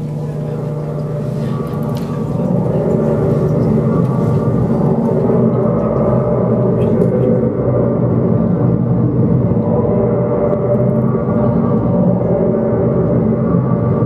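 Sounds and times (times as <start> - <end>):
electronic drone: 0.0 - 14.0
low rumble: 0.0 - 14.0.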